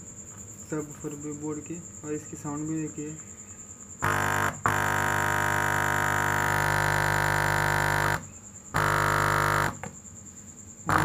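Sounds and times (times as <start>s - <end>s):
buzzy bass note from subwoofer: 4.0s - 8.2s, 8.8s - 9.8s.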